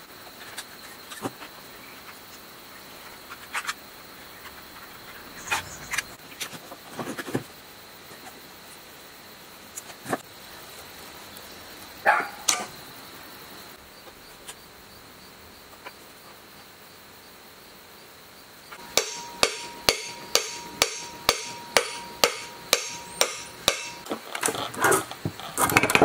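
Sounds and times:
hammer blows on metal housing: 18.8 - 24.1.

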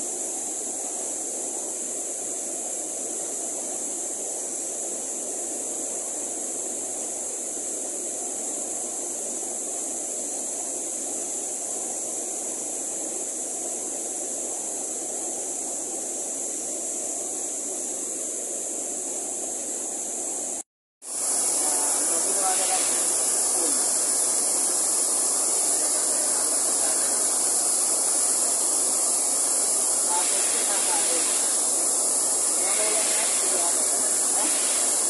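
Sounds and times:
stream rushing over rocks: 21.1 - 35.0.

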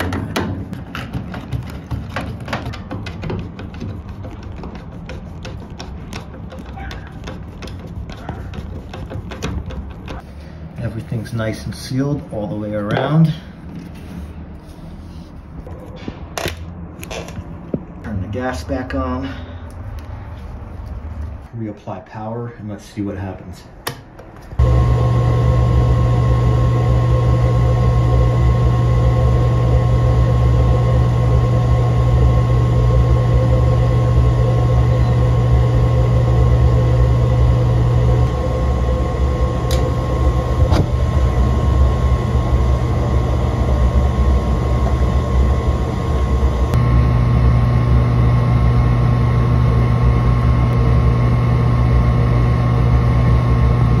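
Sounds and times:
blower humming: 24.6 - 54.0.

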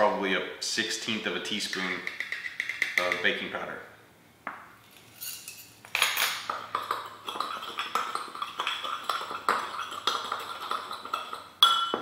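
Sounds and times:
spoon stirring in ceramic bowl: 6.5 - 11.9.

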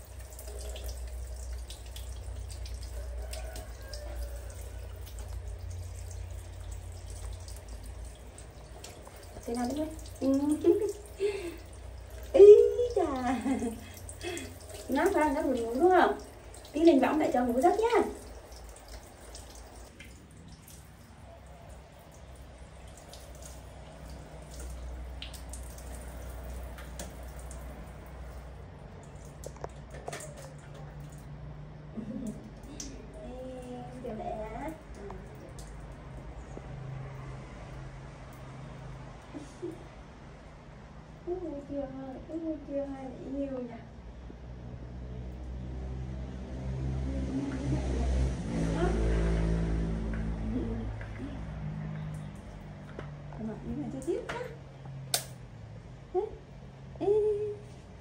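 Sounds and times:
shower water running and splashing: 0.0 - 39.8
water dripping: 0.0 - 39.8, 45.2 - 55.5
low steady background noise: 0.0 - 58.0.

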